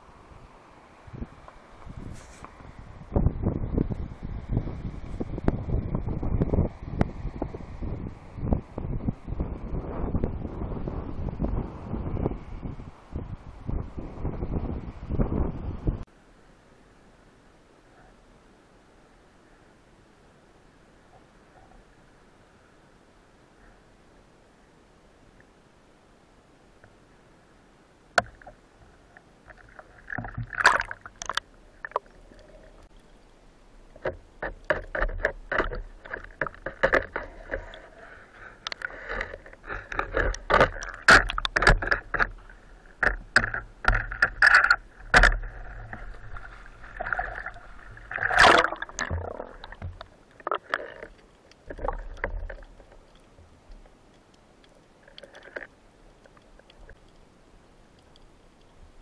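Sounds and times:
underwater clicks and knocks: 28.2 - 33.2, 33.8 - 38.0, 38.6 - 57.2.

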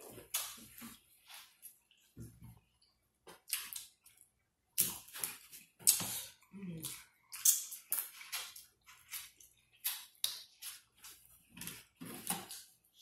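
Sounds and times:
wet chewing and lip smacking: 2.7 - 12.8.

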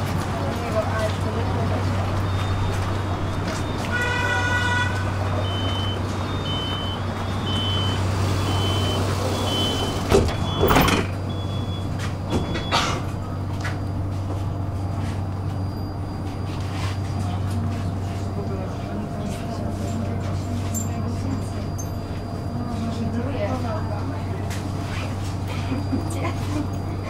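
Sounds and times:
tram hum: 0.0 - 27.0
door warning beeping: 1.8 - 17.3
sliding doors clunk shut: 5.4 - 13.2.

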